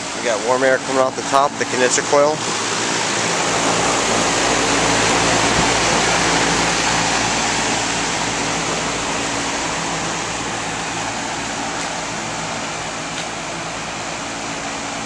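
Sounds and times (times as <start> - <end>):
condenser fan air rushing: 0.0 - 15.0
steady hum: 0.0 - 15.0.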